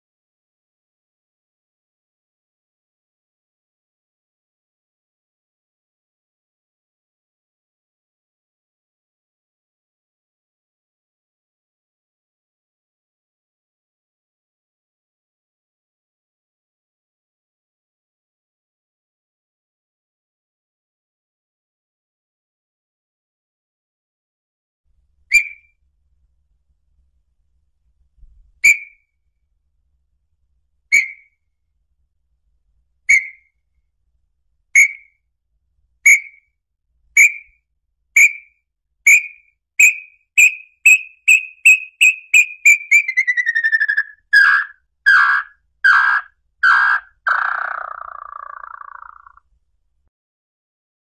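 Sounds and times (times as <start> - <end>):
bird whistling song: 25.3 - 25.8, 28.6 - 29.0, 30.9 - 31.4, 33.1 - 33.5, 34.8 - 35.2, 36.0 - 36.5, 37.2 - 37.6, 38.2 - 49.4.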